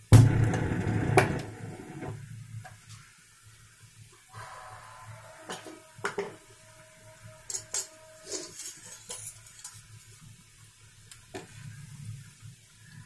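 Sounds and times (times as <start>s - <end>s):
metal spoon scraping a pan: 7.2s - 10.0s.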